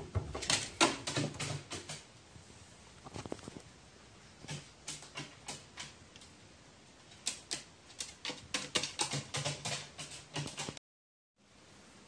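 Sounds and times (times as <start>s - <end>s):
crow tapping on hard surface: 0.4s - 2.0s, 4.4s - 6.0s, 7.2s - 10.8s.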